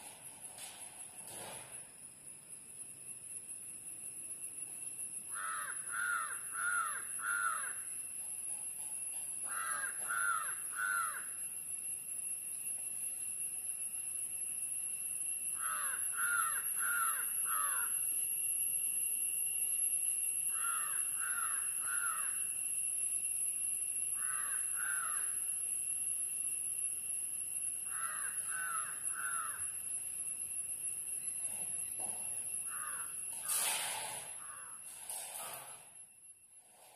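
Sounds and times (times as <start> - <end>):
steady high-pitched hum: 0.0 - 36.9
crow cawing: 5.3 - 7.8, 9.5 - 11.3, 15.6 - 17.9, 20.5 - 22.4, 24.2 - 25.4, 27.9 - 29.7, 32.7 - 33.2, 34.4 - 34.8.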